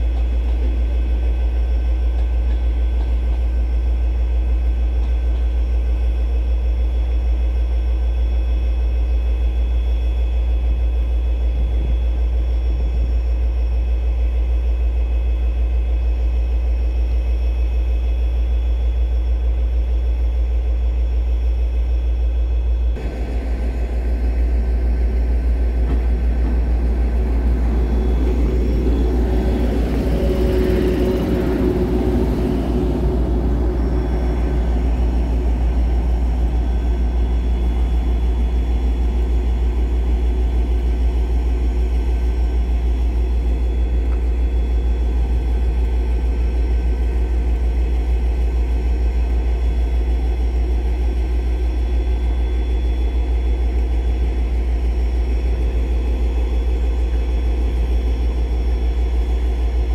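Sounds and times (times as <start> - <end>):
diesel engine idling: 23.0 - 40.6.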